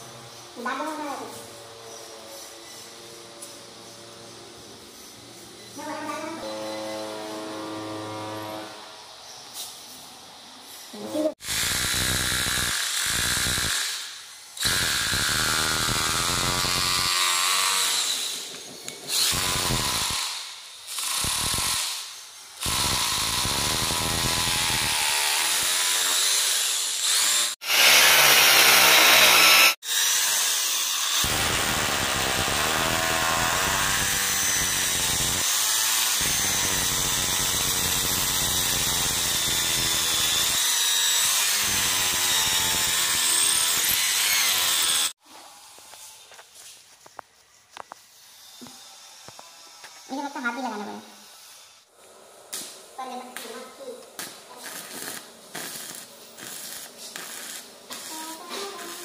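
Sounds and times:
cordless drill drilling masonry: 0:11.3 - 0:45.2, 0:54.6 - 0:59.0
corded drill running: 0:11.4 - 0:45.2.

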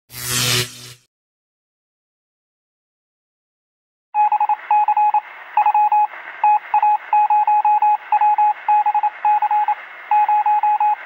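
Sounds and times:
morse code beeping: 0:04.2 - 0:11.0.

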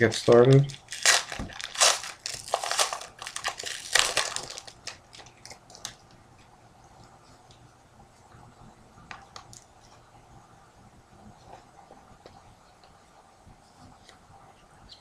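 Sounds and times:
foil wrapper crinkling and tearing: 0:00.0 - 0:06.0.

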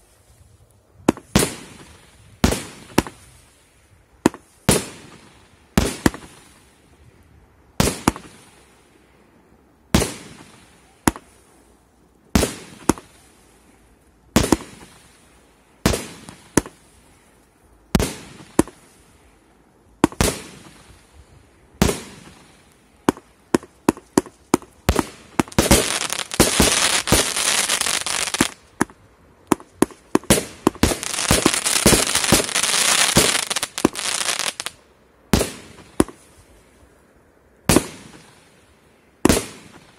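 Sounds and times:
firework crackling: 0:01.1 - 0:06.9, 0:12.3 - 0:13.6, 0:14.3 - 0:17.2, 0:20.0 - 0:21.2, 0:21.8 - 0:36.4, 0:37.6 - 0:38.6, 0:39.2 - 0:39.9
firework bangs: 0:14.4 - 0:15.0, 0:20.0 - 0:20.9, 0:21.8 - 0:34.7, 0:35.3 - 0:36.2, 0:37.7 - 0:38.4, 0:39.2 - 0:39.9.

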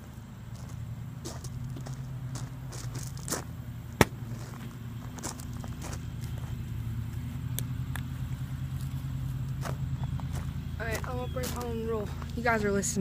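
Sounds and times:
small engine droning: 0:00.0 - 0:13.0.

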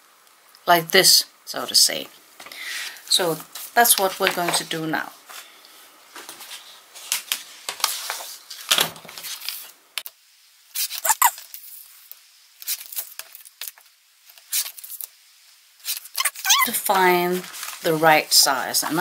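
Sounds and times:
paper rustling and sliding: 0:06.2 - 0:09.8, 0:10.7 - 0:12.0, 0:12.6 - 0:15.2, 0:15.8 - 0:16.4, 0:17.1 - 0:18.4
paper trimmer arm squeak: 0:11.0 - 0:11.3.

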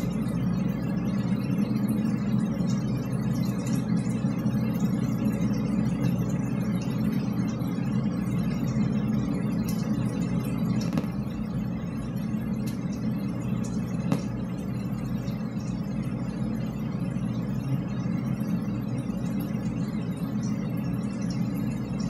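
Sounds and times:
low rumble in drainpipe: 0:00.0 - 0:22.0.

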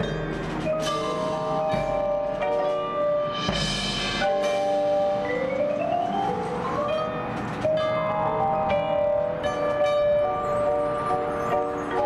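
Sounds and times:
mallet percussion runs: 0:00.0 - 0:12.0
cymbal crash: 0:03.3 - 0:05.4.

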